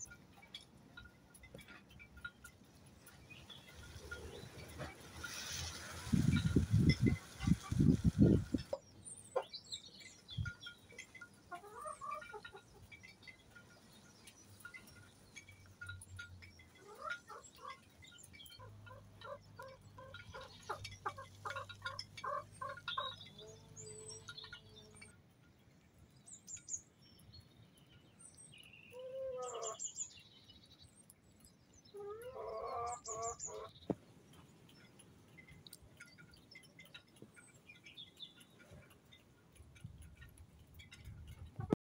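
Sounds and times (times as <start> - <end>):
beaks pecking at gravel: 0.0 - 25.0, 26.3 - 41.7
chickens clucking: 1.4 - 9.6, 10.4 - 13.9, 15.8 - 25.0, 31.9 - 41.8
chicken drawn-out calls: 11.5 - 12.9, 16.8 - 17.8, 18.5 - 24.1, 28.9 - 29.8, 31.9 - 33.7.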